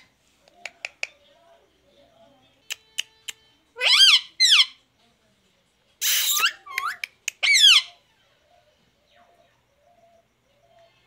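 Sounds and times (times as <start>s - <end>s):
parakeet harsh squawk: 3.8s - 4.8s, 6.0s - 8.0s
parakeet high-pitched calls: 3.8s - 4.8s, 6.0s - 8.3s.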